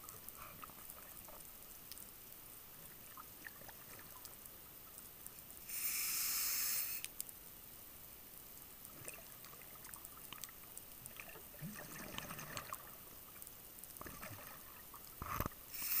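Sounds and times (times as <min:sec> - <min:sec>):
regulator hiss underwater: 0:05.6 - 0:07.1, 0:15.7 - 0:16.0
small clicks: 0:07.0 - 0:07.4
bubbling: 0:08.9 - 0:13.3, 0:14.0 - 0:15.6.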